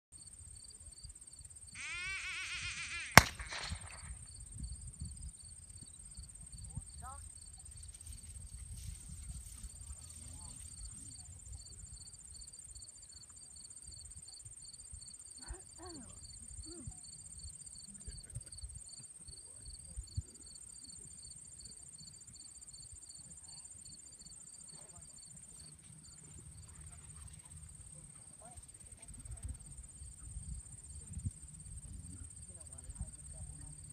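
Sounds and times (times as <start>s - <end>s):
insect chirping: 0.2s - 8.2s
insects buzzing: 1.3s - 4.5s
gunshot with echo: 3.1s - 4.2s.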